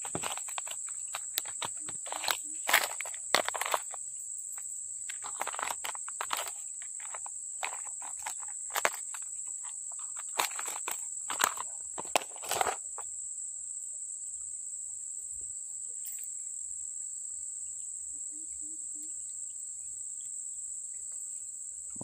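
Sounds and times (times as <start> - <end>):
rustles and crunches: 0.0 - 13.0
insects chirring: 0.0 - 22.0.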